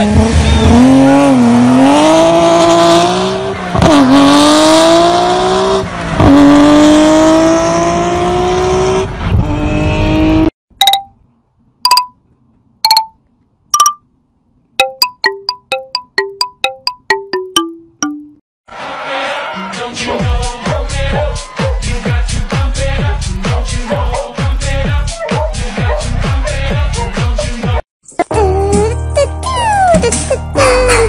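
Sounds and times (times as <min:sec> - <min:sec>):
car engine revving hard: 0:00.0 - 0:10.5
plucked chime-like music notes: 0:10.8 - 0:11.1, 0:11.9 - 0:12.2, 0:12.9 - 0:13.2, 0:13.8 - 0:14.0, 0:14.8 - 0:18.4.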